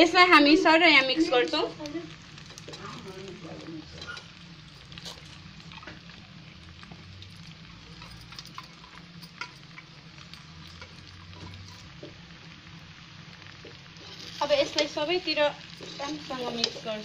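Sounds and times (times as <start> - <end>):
pasta sizzling in a frying pan: 0.0 - 17.0
utensils clicking and scraping: 2.4 - 6.0, 7.2 - 12.1, 15.7 - 17.0.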